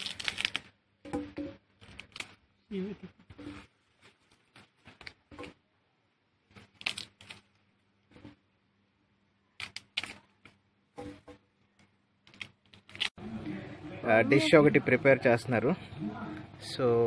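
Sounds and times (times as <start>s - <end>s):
soil and dry leaves crackling: 0.0s - 0.7s, 6.5s - 7.6s.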